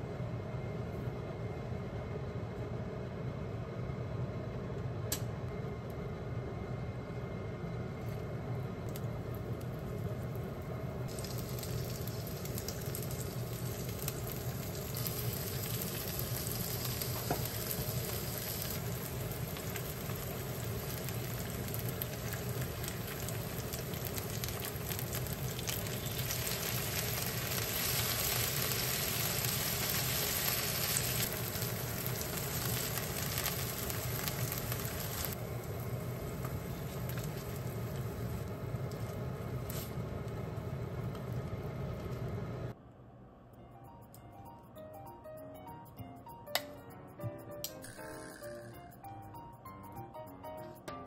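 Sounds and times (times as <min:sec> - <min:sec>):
chicken sizzling in oil: 0:09.2 - 0:41.0.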